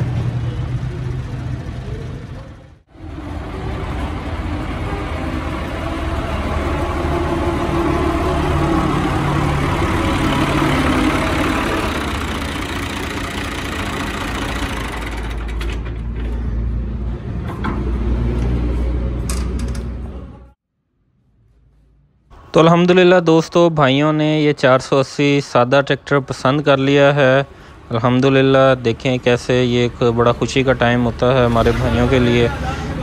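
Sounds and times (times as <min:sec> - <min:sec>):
tractor diesel engine running: 0:00.0 - 0:20.5.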